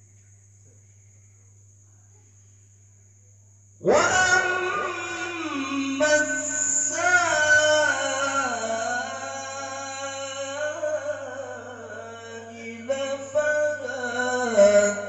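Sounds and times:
man chanting into a microphone: 3.8 - 15.0.

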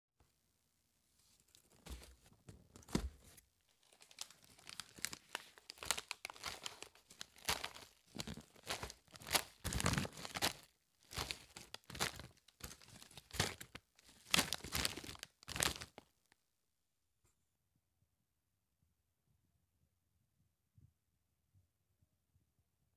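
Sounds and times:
plastic snack bags crinkling: 3.7 - 16.1.

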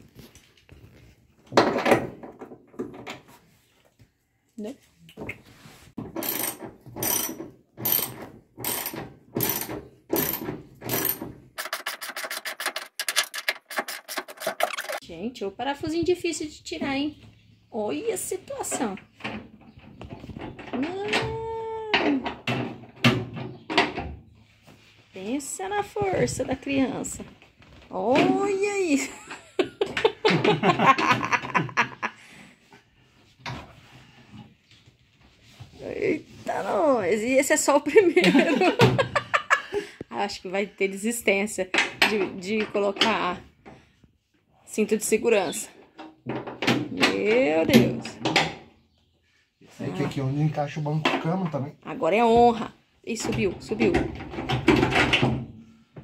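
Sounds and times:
ratchet wrench clicking: 6.2 - 15.0
person making laughter-like sounds: 29.1 - 32.2.

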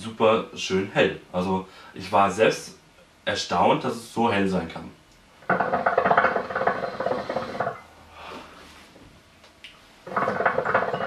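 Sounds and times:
hookah water bubbling: 5.5 - 7.8.

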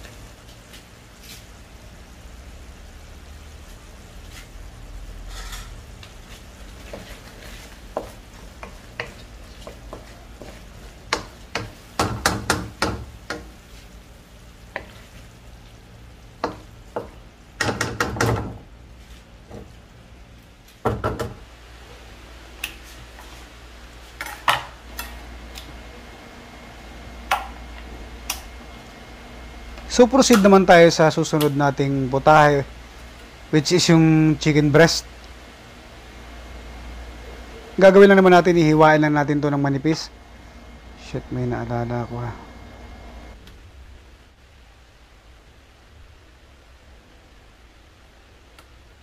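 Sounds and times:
faint sauce sizzle: 0.0 - 17.6
wooden spatula scraping a pan: 3.6 - 14.0, 14.7 - 15.4.

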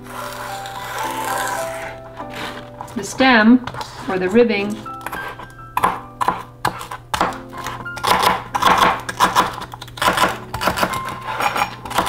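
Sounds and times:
background music: 0.0 - 12.0
knife chopping on cutting board: 4.8 - 12.0.

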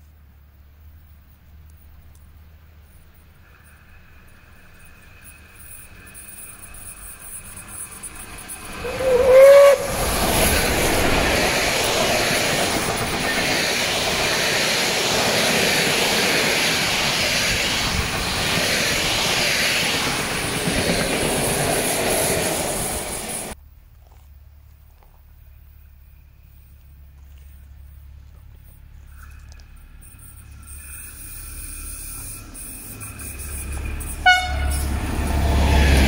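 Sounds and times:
train wheels on rails: 0.9 - 23.6, 28.6 - 36.0
steam locomotive whistle: 6.6 - 12.4, 31.2 - 36.0.

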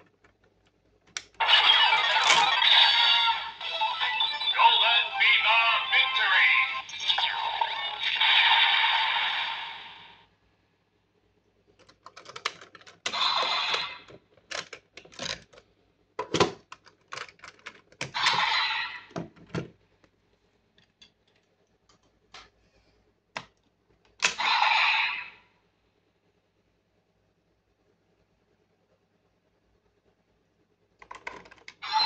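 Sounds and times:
plastic toy clicking: 11.8 - 13.8, 14.4 - 15.6.

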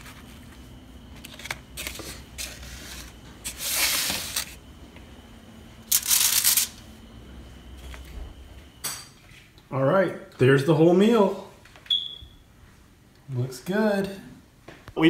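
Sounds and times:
paper rustling and scraping: 0.0 - 4.6, 5.9 - 6.8
faint steady hum: 0.0 - 15.0.

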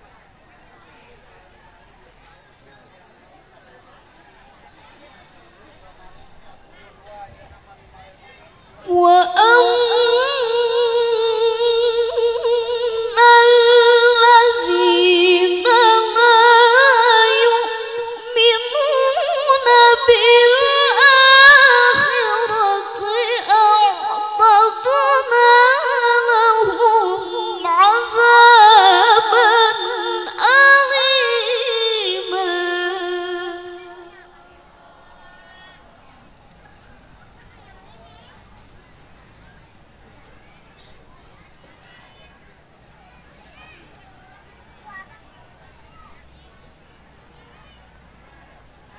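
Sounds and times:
woman chanting melodic recitation: 8.6 - 34.8.

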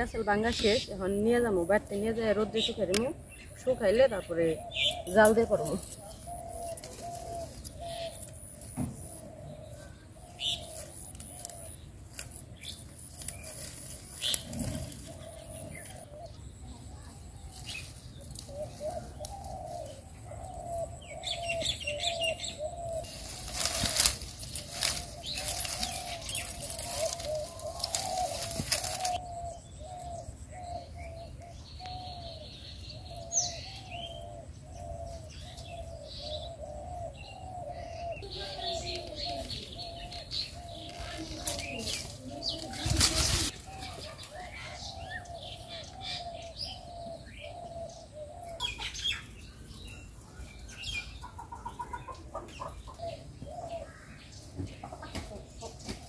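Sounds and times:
birds calling short low notes: 14.2 - 30.8.

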